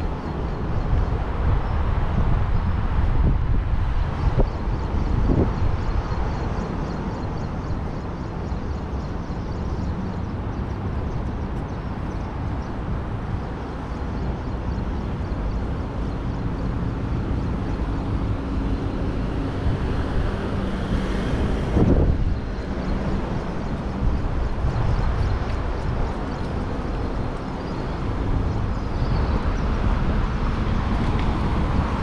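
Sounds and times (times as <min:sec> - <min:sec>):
car engines and tyres rumbling: 0:00.0 - 0:32.0.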